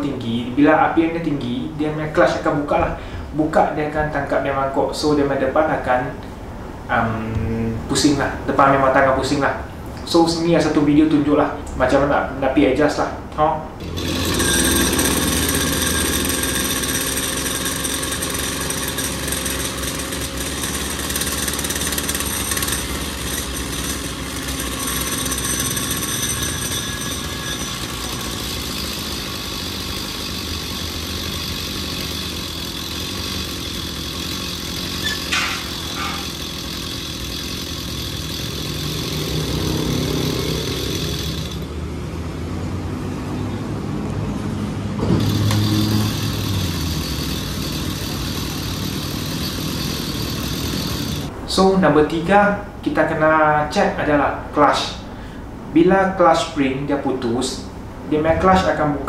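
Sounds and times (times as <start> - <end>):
small petrol engine idling: 13.8 - 43.4, 44.8 - 51.3.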